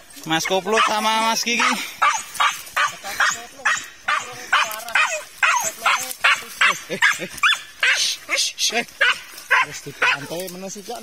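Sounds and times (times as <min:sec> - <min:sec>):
dog barking quickly: 0:00.4 - 0:08.4, 0:09.0 - 0:10.3.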